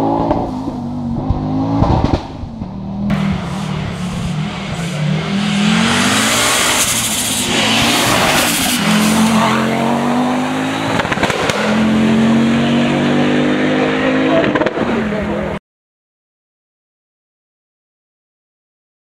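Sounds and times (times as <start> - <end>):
rally car engine accelerating: 0.0 - 15.6
exhaust pops: 1.1 - 5.0, 10.9 - 11.7.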